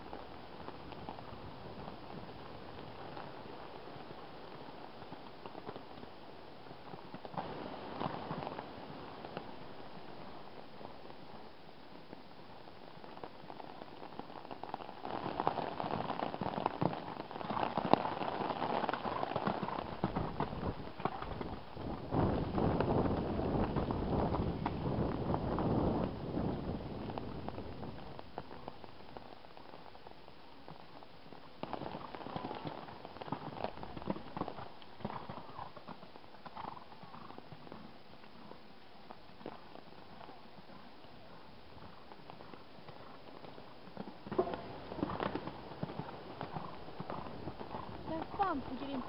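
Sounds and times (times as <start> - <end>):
horse hoofbeats on wet sand: 0.1 - 11.3, 12.8 - 30.0, 30.6 - 49.0
rain drops ticking: 7.1 - 35.0, 47.4 - 49.0.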